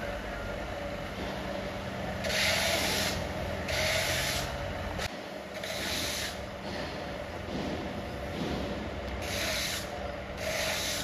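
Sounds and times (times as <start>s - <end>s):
plastering tool rubbing on wall: 2.2s - 4.6s, 5.6s - 7.0s, 7.6s - 11.0s.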